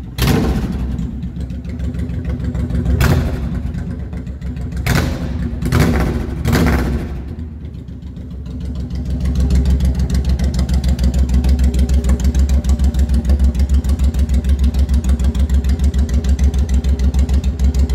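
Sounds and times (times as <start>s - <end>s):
motorcycle engine idling: 0.0s - 17.9s.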